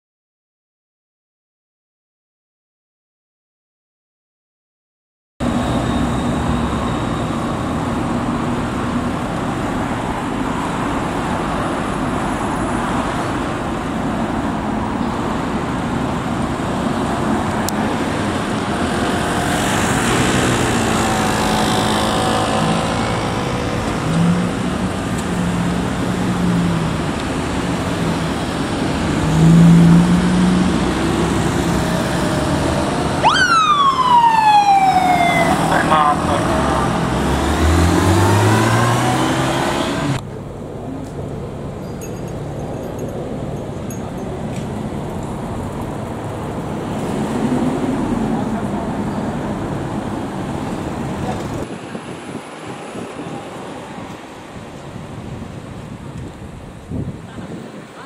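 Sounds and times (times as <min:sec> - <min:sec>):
street traffic: 0:05.4 - 0:58.0
police motorcycle siren: 0:32.1 - 0:37.1.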